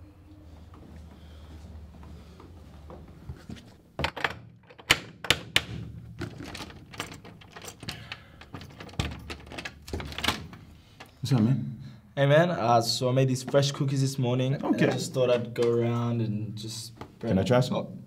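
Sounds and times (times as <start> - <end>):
door lock clicking and rattling: 4.0 - 11.2.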